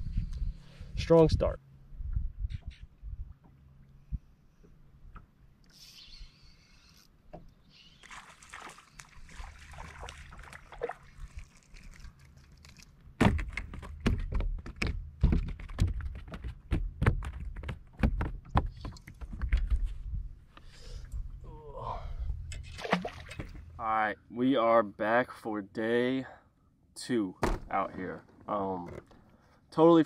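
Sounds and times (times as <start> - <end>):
thumps and knocks: 13.2 - 19.7.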